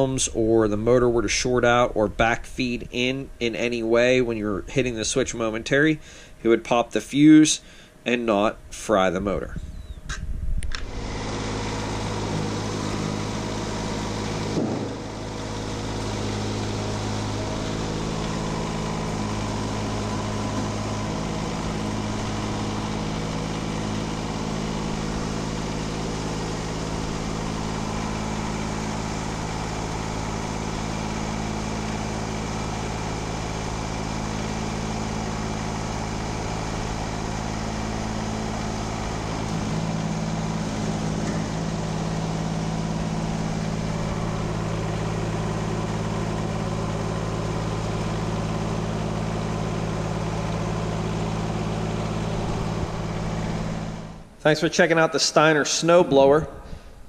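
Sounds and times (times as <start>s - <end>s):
tractor diesel engine idling: 0.0s - 9.5s, 10.7s - 57.0s
short knock: 14.6s - 15.0s.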